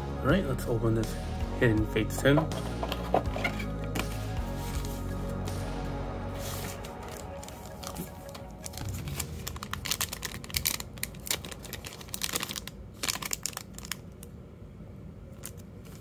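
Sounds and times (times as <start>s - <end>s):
background music: 0.0s - 11.6s
foil wrappers crinkling and tearing: 6.5s - 14.3s.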